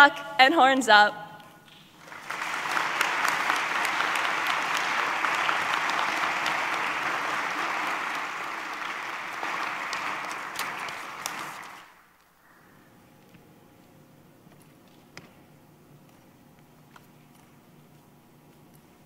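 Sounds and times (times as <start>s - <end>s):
audience applauding: 1.7s - 12.1s.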